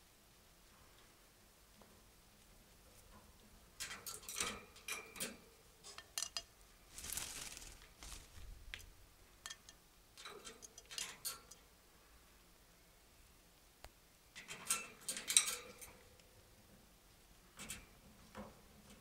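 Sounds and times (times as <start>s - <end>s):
birds clicking in a wire cage: 3.8s - 8.9s, 9.5s - 11.6s, 14.4s - 16.0s
feathers rustling: 6.9s - 8.9s.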